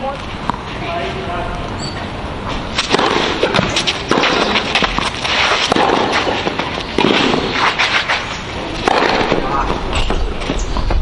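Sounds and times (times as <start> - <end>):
racket hitting tennis ball: 2.5 - 10.6.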